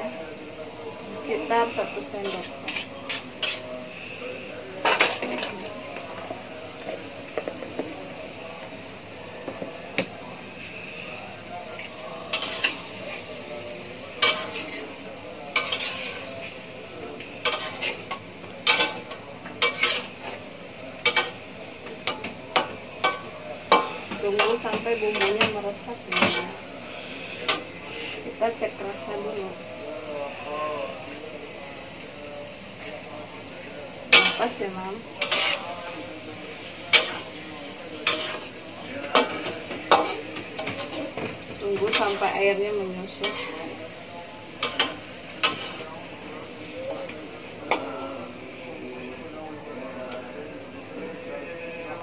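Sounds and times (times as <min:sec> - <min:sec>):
sauce sizzling: 0:00.0 - 0:52.0
metal spatula scraping a wok: 0:01.7 - 0:04.1, 0:12.2 - 0:13.3, 0:14.2 - 0:16.6, 0:17.4 - 0:20.4, 0:35.2 - 0:37.4, 0:38.0 - 0:41.2, 0:43.1 - 0:43.8, 0:44.6 - 0:45.9.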